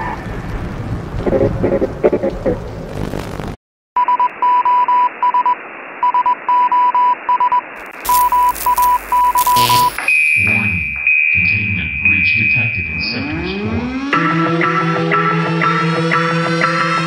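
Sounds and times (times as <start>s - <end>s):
loud burst of static: 1.1s - 3.6s, 7.8s - 10.1s
morse code beeping: 4.0s - 10.6s
radio static hiss: 7.8s - 10.1s.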